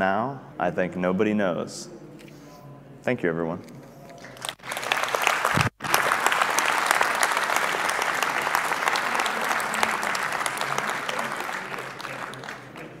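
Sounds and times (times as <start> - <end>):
audience applauding: 4.2 - 13.0.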